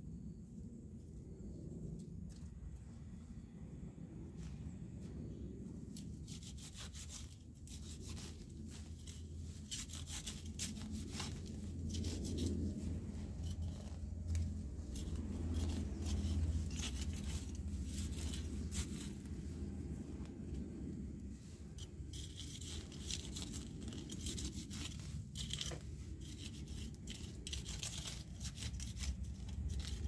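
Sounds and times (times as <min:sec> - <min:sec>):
low steady rumble: 0:00.0 - 0:30.0
sickle slicing stems and grass: 0:06.2 - 0:19.5, 0:21.8 - 0:30.0.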